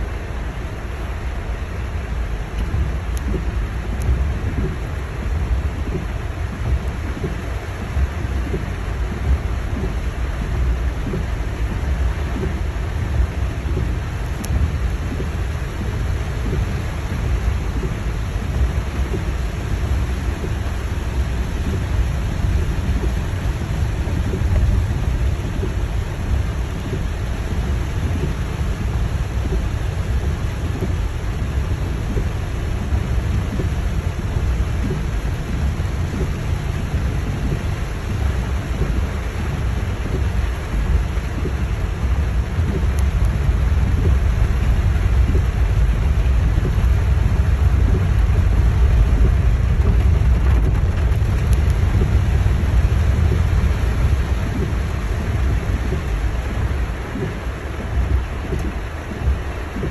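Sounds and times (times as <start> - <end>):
deep rumble: 0.0 - 59.9
heavy rain drumming on car roof: 0.0 - 59.9.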